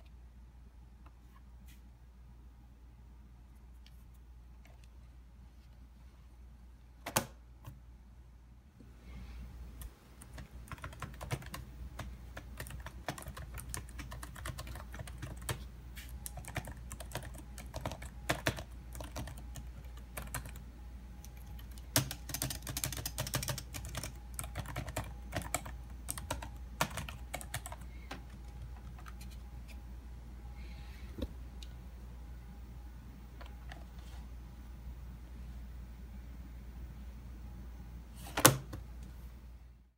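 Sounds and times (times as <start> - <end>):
laptop keyboard typing: 9.8 - 29.4.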